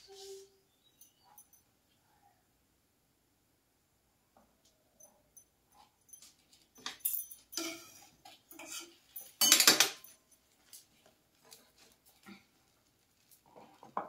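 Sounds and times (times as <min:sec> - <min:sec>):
utensils clattering on a counter: 0:06.2 - 0:10.2.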